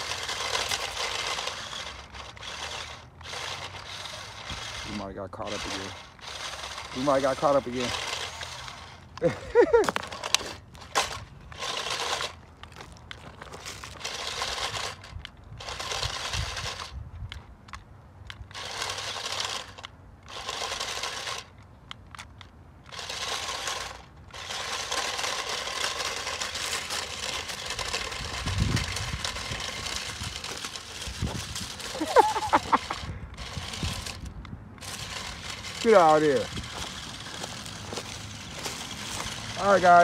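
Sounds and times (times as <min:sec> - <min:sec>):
electric motors whirring: 0:00.0 - 0:17.4, 0:18.3 - 0:40.0
stones crunching and rattling: 0:05.6 - 0:16.6, 0:22.9 - 0:40.0.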